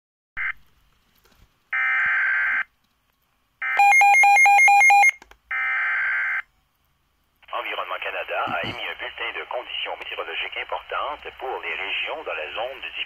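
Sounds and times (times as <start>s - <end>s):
alternating alarm beeps: 3.6s - 6.4s.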